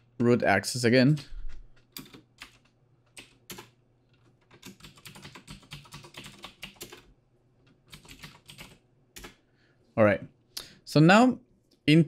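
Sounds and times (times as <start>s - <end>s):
typing on computer keyboard: 1.2s - 7.1s, 7.9s - 9.4s.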